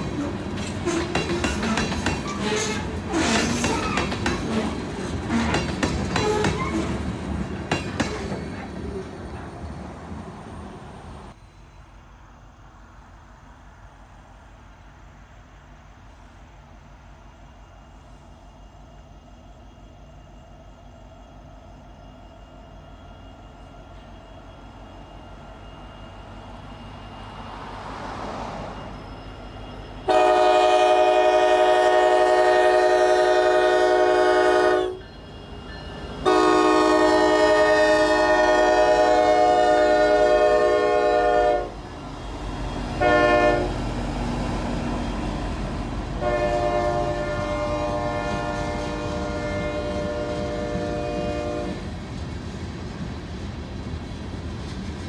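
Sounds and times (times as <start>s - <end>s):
low rumble of train: 0.0s - 55.0s
locomotive air horn blasts: 30.1s - 35.1s, 36.2s - 41.8s, 42.9s - 43.8s, 46.2s - 51.8s.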